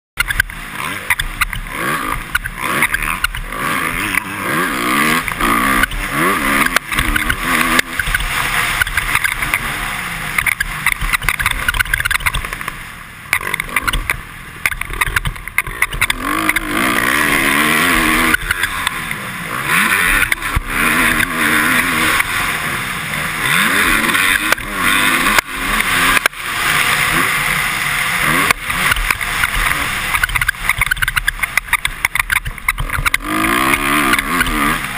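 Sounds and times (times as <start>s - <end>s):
motorcycle engine revving: 0.2s - 34.9s
helmet visor squeaking: 30.2s - 33.1s.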